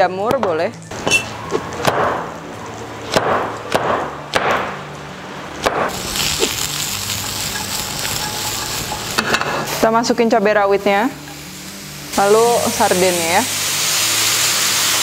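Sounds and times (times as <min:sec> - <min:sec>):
garlic and onion sizzling in oil: 0:05.7 - 0:15.0.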